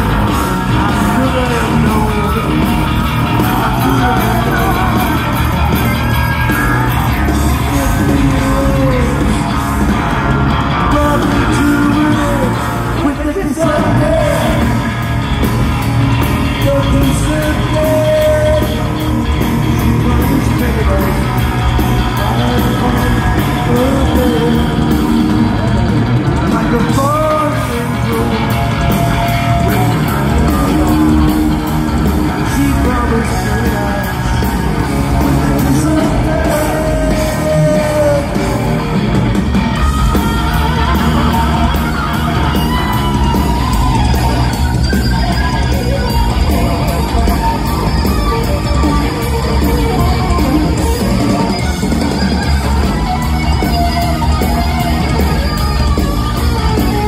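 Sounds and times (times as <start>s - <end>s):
man singing long notes: 0.0s - 5.7s, 7.2s - 9.6s, 10.8s - 15.1s, 19.7s - 25.6s, 26.4s - 38.9s
hard rock band playing: 0.0s - 57.0s.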